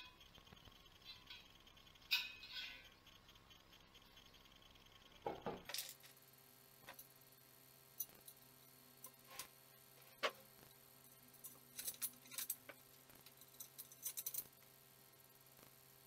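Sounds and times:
metal frame clinking: 2.1s - 2.9s.

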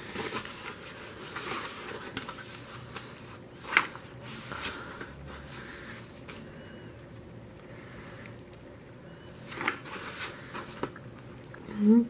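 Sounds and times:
pages turning with paper rustling: 0.0s - 6.6s, 9.4s - 11.0s.

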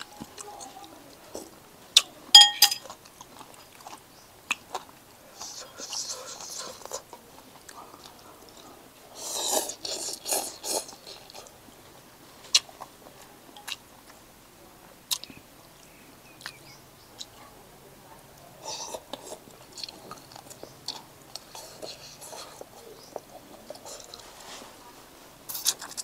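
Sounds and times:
person chewing: 2.0s - 11.5s, 15.1s - 17.3s, 18.6s - 24.2s, 25.5s - 26.0s.

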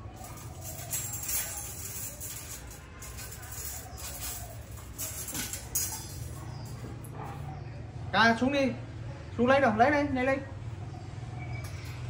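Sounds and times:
wire hangers clinking on metal rack: 0.0s - 7.4s.

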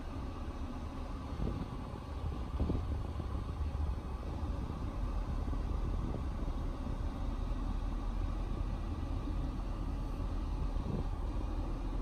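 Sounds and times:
road and engine rumble in car: 0.0s - 12.0s.

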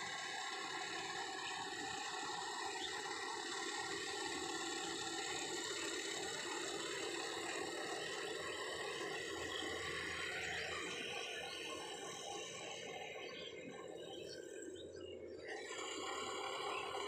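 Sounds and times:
high machine whine: 0.0s - 17.0s.

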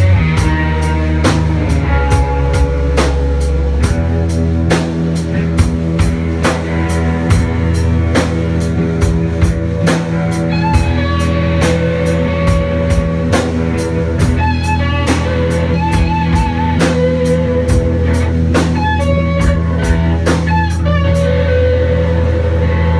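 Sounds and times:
drum kit beat with cymbals: 0.0s - 22.9s
electric guitars: 0.0s - 22.9s.

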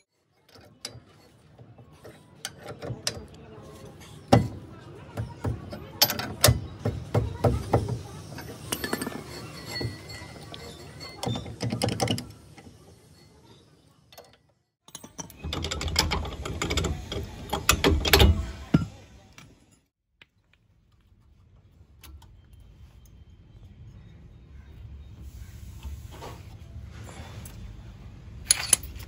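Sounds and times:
metal hand tools clinking: 8.3s - 19.8s, 28.4s - 29.0s.

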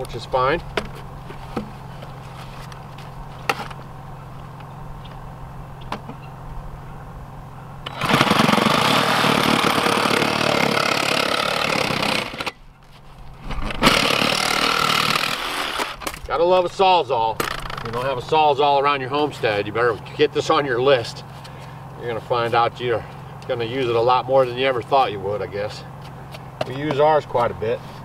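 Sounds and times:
reciprocating saw cutting plastic pipe: 7.8s - 12.6s, 13.6s - 16.0s.

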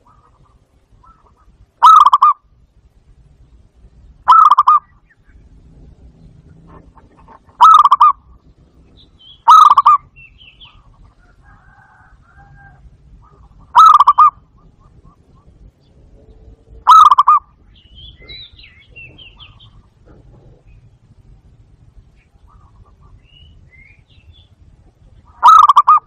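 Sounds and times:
dove cooing: 0.0s - 2.4s, 4.2s - 5.0s, 6.2s - 23.6s, 24.2s - 26.0s
high bird chirps: 4.2s - 5.6s, 7.5s - 10.9s, 13.2s - 19.9s, 22.1s - 26.0s.

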